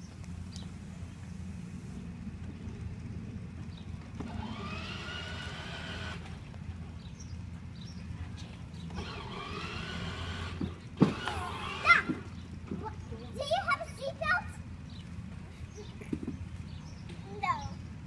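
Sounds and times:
toy car motor whirring: 4.2 - 6.3, 8.9 - 12.4.

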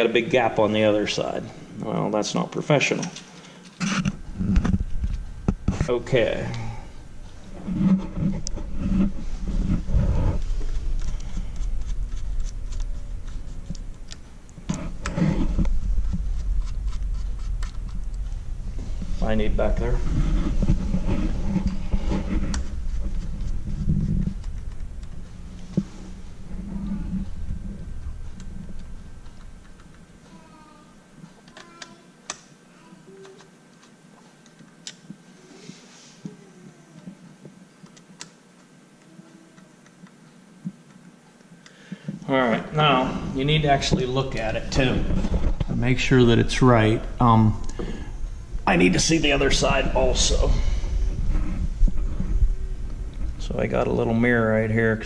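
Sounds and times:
low handling rumble: 4.2 - 30.0, 42.6 - 55.0.

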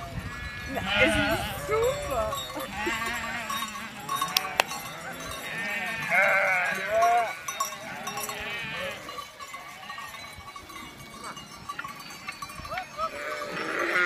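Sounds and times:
sheep bleating: 0.4 - 9.1, 13.0 - 14.0.

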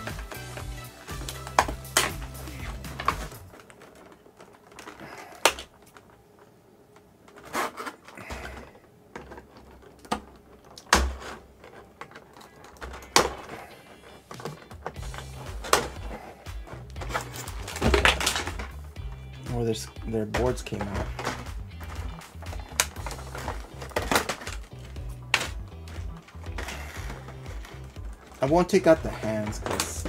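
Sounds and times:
plastic crinkling and rustling: 0.0 - 30.0.

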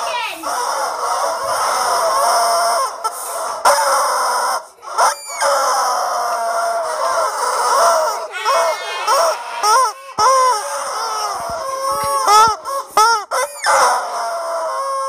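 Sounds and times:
rubber chicken toys squawking: 0.0 - 15.0.

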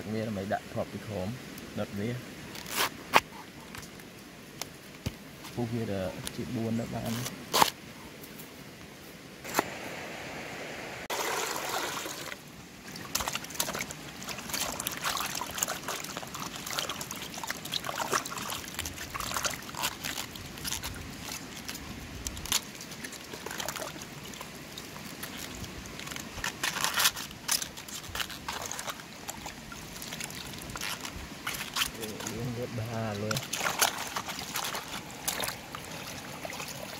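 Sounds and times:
water sloshing and splashing: 11.1 - 36.9
water trickling and dripping: 11.1 - 36.9.

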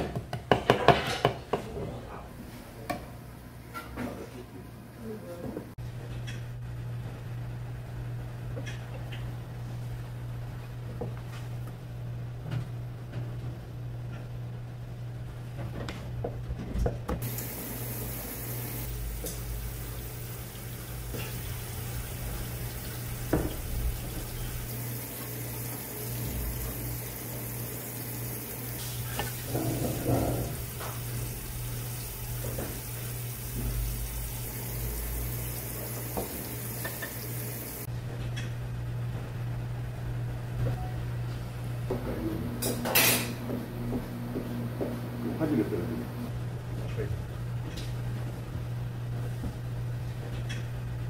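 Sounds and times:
tap water running into sink: 17.2 - 37.9.

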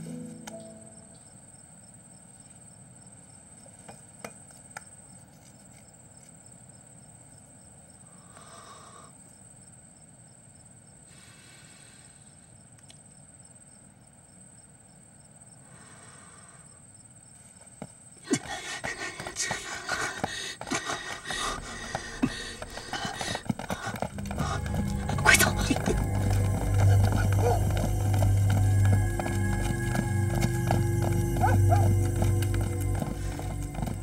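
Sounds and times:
insect trill: 0.0 - 34.0
insects chirping: 0.0 - 34.0
faint ticks: 12.7 - 13.1.

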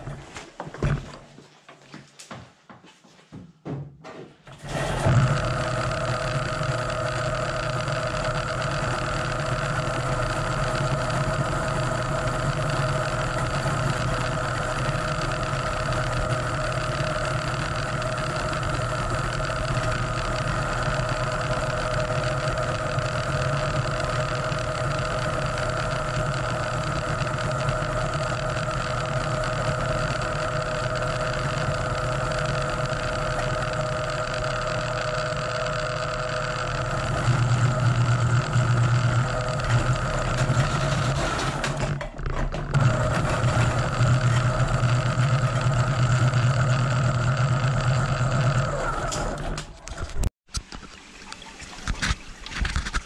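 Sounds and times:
drain cleaning machine humming: 4.6 - 50.2.

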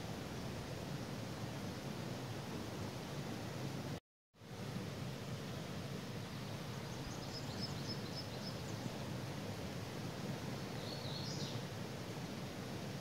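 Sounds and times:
songbird calling: 6.8 - 9.0, 10.6 - 11.6.

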